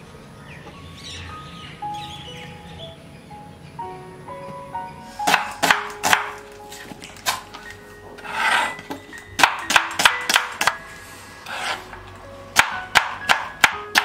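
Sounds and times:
knife chopping on wooden board: 0:05.3 - 0:06.4, 0:12.6 - 0:14.0
knife scraping board: 0:08.2 - 0:09.0, 0:11.4 - 0:12.0.

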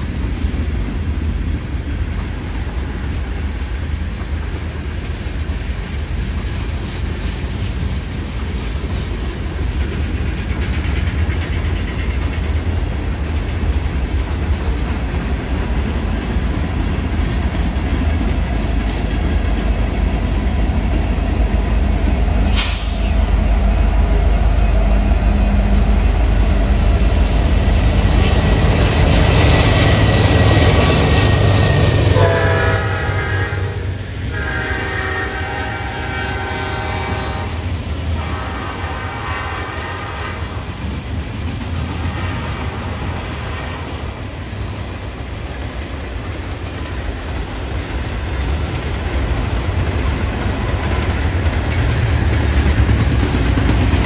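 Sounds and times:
freight train rumbling: 0:00.0 - 0:54.0
wheels clacking over rails: 0:01.5 - 0:22.7, 0:40.6 - 0:54.0
train horn: 0:32.1 - 0:40.7.

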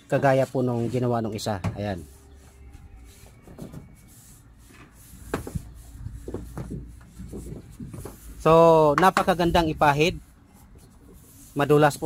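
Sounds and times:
paintbrush scratching on metal roofing: 0:00.1 - 0:12.0.

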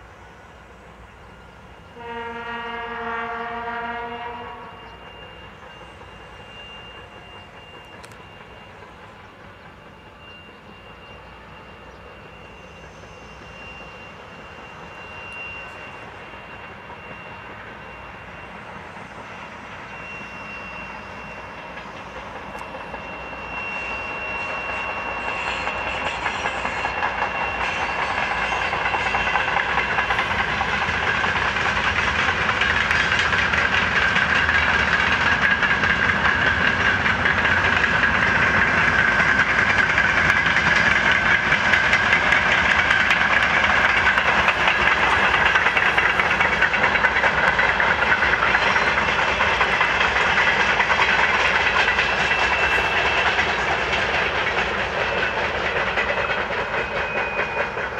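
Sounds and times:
freight train rumble: 0:00.0 - 0:57.9
wheels clattering on rails: 0:21.6 - 0:57.9.

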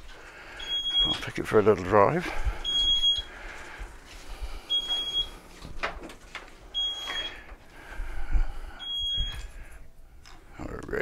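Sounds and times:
high reversing beeps: 0:00.6 - 0:01.2, 0:02.6 - 0:03.3, 0:04.7 - 0:05.4, 0:06.8 - 0:07.4, 0:08.8 - 0:09.5.

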